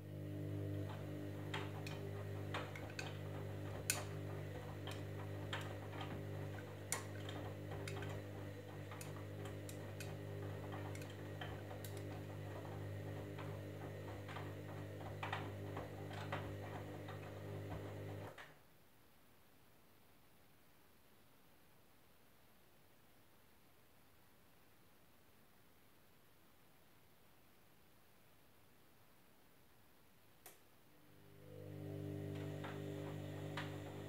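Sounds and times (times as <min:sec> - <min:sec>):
washing machine motor humming: 0:00.0 - 0:18.4, 0:31.0 - 0:34.0.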